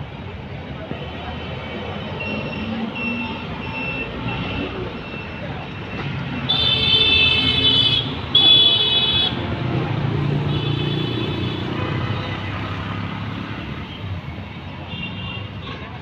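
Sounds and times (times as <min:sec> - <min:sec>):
road traffic rumble: 0:00.0 - 0:16.0
vehicle horn: 0:06.5 - 0:09.4.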